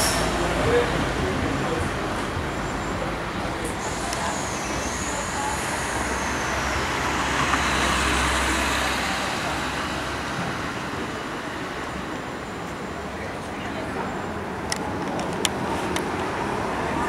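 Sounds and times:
railcar motor hum and rolling: 0:00.0 - 0:17.0
high wheel squeal: 0:02.6 - 0:10.4.

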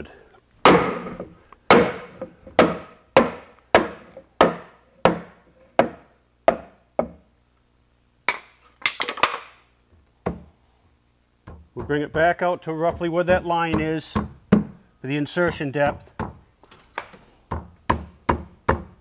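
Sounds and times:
hammer striking wooden block: 0:00.6 - 0:07.2, 0:11.5 - 0:14.8.

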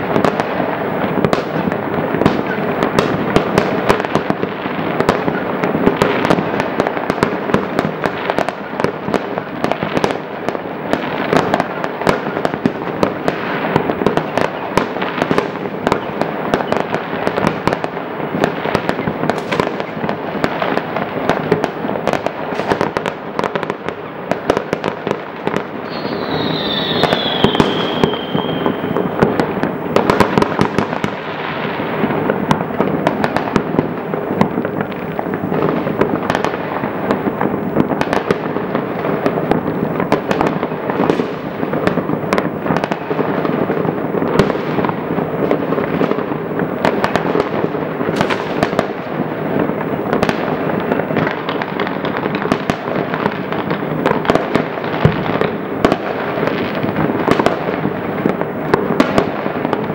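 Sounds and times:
fireworks crackling and banging: 0:00.0 - 0:59.9
firework whistle gliding down: 0:25.8 - 0:29.4.

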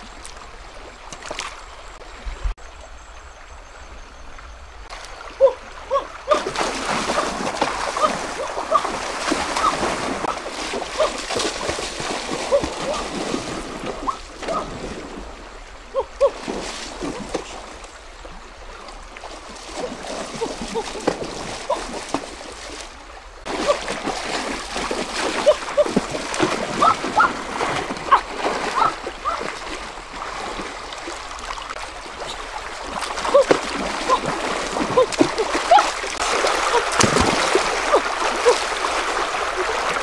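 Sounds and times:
water splashing: 0:00.0 - 0:02.6, 0:04.9 - 0:40.0
stream rushing: 0:04.4 - 0:40.0
hands splashing into water: 0:32.9 - 0:40.0.

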